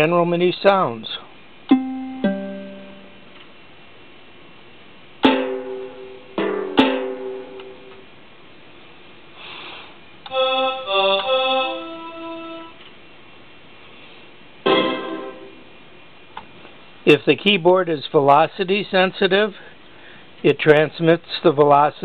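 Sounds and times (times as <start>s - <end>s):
electronic instrument notes: 1.7s - 3.4s, 14.7s - 15.7s.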